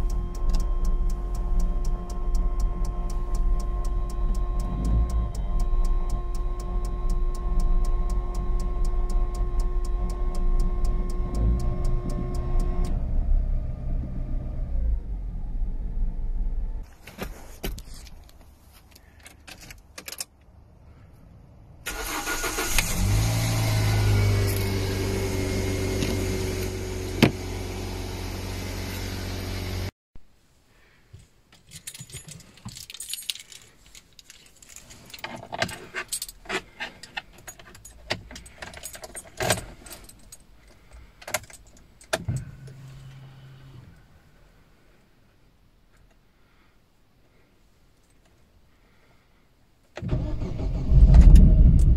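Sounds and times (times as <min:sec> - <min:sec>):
car engine running: 0:00.0 - 0:16.8, 0:22.8 - 0:29.9
car engine cold start and idle: 0:00.0 - 0:16.9, 0:21.8 - 0:29.9, 0:35.2 - 0:45.1, 0:49.9 - 0:51.9
low steady hum: 0:00.0 - 0:19.2, 0:31.7 - 0:49.8.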